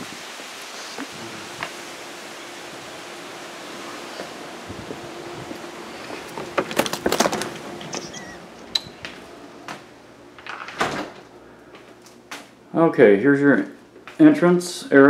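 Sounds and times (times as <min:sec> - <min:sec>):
door knocks and footsteps: 0:06.2 - 0:08.2.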